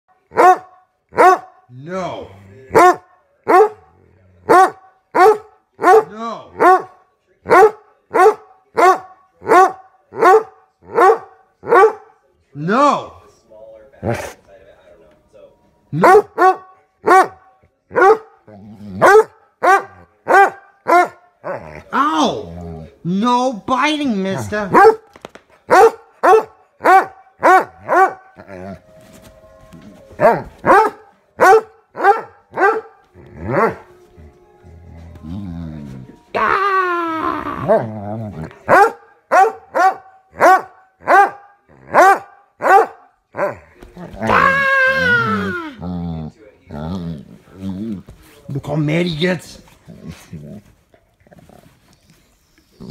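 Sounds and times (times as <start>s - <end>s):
dog barking: 0.3s - 1.6s, 2.7s - 12.1s, 16.0s - 18.4s, 19.0s - 21.3s, 24.7s - 25.1s, 25.7s - 28.4s, 30.2s - 33.8s, 38.7s - 43.6s
dog growling: 18.4s - 19.1s, 21.4s - 23.0s, 33.1s - 38.7s, 43.4s - 48.1s.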